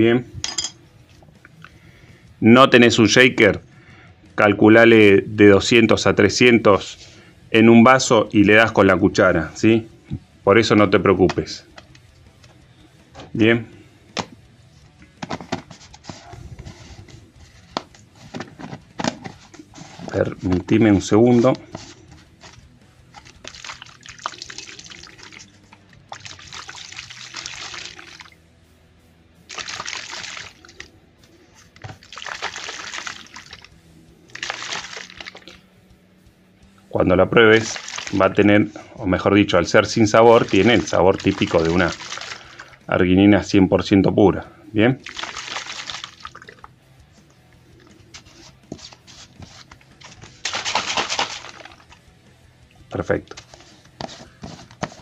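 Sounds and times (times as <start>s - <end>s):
water sloshing in shaker bottle: 21.6s - 28.4s, 29.5s - 30.9s, 31.6s - 35.6s, 37.6s - 38.6s, 39.8s - 42.8s, 45.0s - 46.7s, 48.2s - 52.0s.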